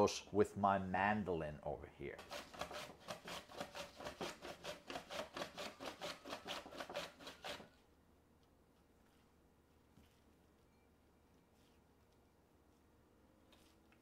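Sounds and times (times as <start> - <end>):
vegetable rasping on mandoline blade: 2.2 - 7.7.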